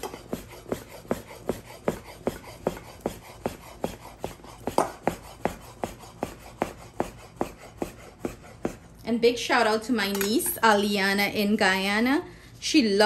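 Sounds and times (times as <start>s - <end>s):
knife chopping on cutting board: 0.0s - 8.9s.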